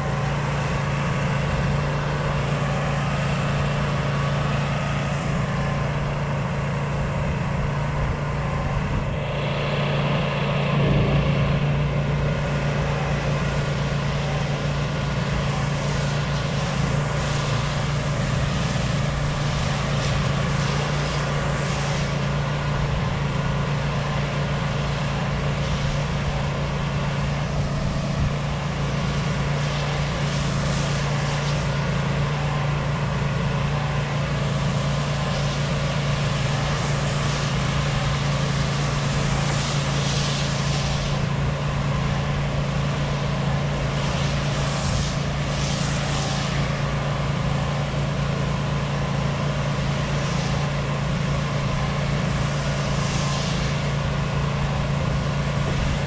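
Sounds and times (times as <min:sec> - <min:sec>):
pressure washer engine hum: 0:00.0 - 0:56.0
spray wand hissing: 0:12.1 - 0:56.0.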